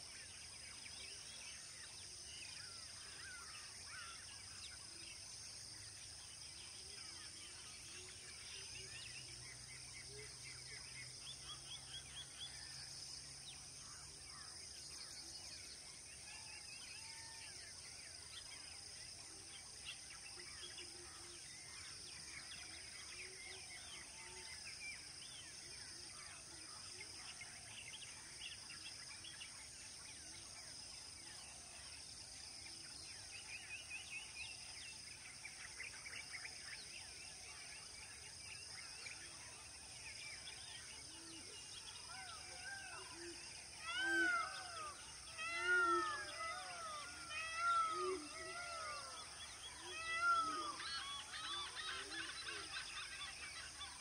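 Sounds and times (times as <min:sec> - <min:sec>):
insect trilling: 0:43.8 - 0:52.7.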